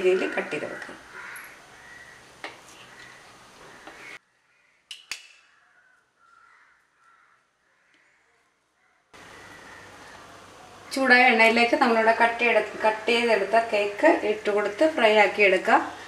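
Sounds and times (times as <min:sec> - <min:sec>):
faint bird calls: 0:01.1 - 0:10.9.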